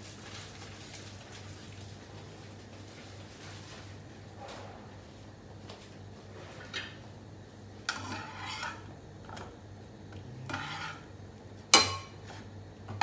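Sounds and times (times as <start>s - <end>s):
metal spatula scraping pan: 7.9s - 8.9s, 10.4s - 11.1s.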